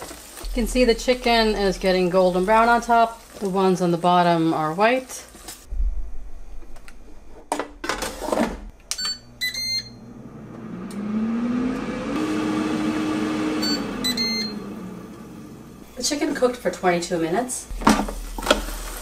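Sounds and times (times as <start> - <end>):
air fryer fan whirring: 8.2 - 19.0
control panel beeps: 8.9 - 10.0.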